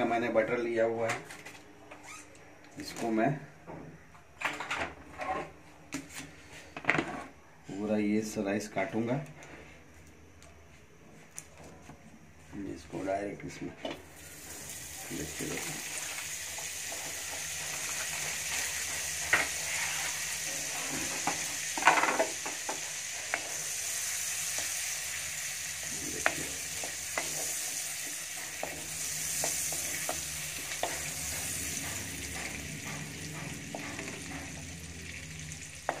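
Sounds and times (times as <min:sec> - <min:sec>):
butter sizzling in a pan: 0:14.2 - 0:36.0
wooden spatula scraping a pan: 0:16.7 - 0:21.4.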